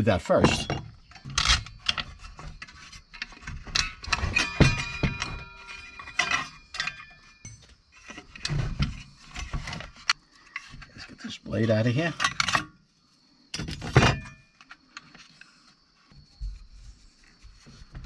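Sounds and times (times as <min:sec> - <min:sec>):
metal tools clinking on workbench: 0:00.4 - 0:08.6, 0:12.0 - 0:12.8
metallic ring: 0:03.7 - 0:08.0.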